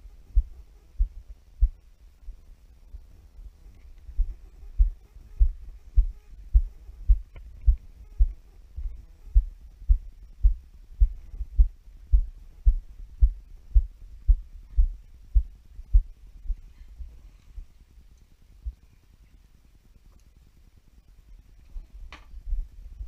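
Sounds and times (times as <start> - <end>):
footsteps dull thuds: 4.2 - 16.1.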